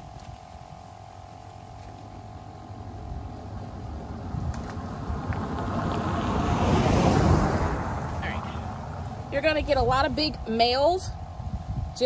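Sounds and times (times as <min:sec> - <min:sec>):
pickup truck approaching: 0:02.2 - 0:10.1.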